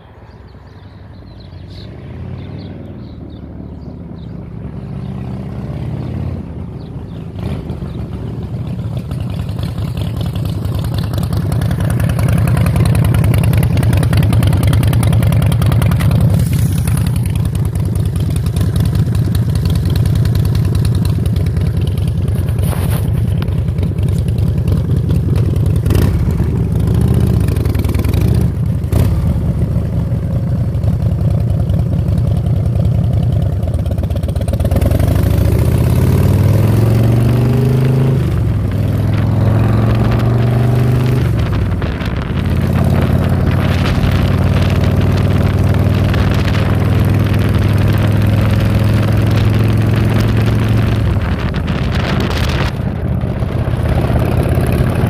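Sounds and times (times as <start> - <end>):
motorcycle engine revving: 2.2 - 55.0
motorcycle engine idling: 6.7 - 35.6.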